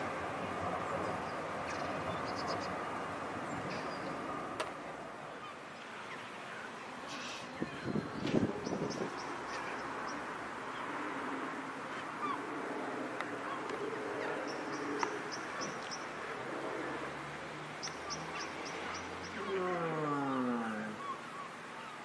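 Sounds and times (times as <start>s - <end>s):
small birds chirping: 0.9s - 2.9s, 5.3s - 11.0s, 13.4s - 16.2s, 17.8s - 22.0s.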